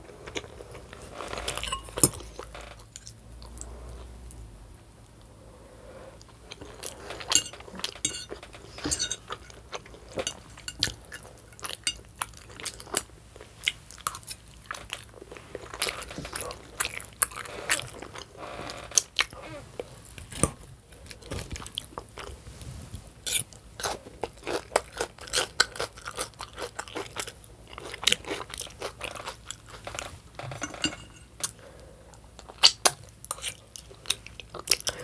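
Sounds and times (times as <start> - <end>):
chewing crunchy food: 6.2 - 22.4, 23.3 - 30.1, 31.4 - 35.0.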